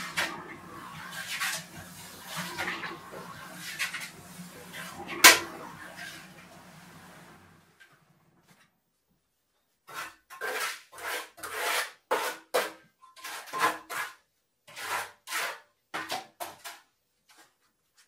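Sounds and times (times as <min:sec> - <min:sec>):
tool scraping wet concrete: 0:00.0 - 0:07.3, 0:09.9 - 0:15.6.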